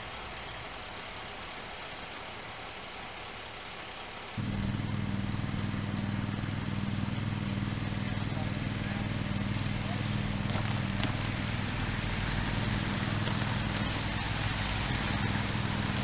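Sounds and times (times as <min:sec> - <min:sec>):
steady hiss: 0:00.0 - 0:16.0
fire engine engine humming: 0:04.4 - 0:16.0.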